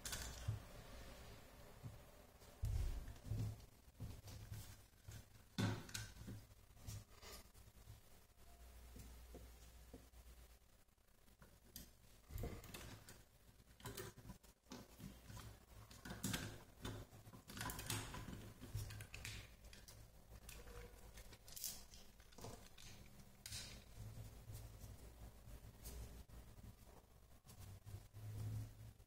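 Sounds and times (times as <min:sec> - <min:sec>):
plastic parts clicking and rustling: 0:00.0 - 0:00.7, 0:11.7 - 0:24.1.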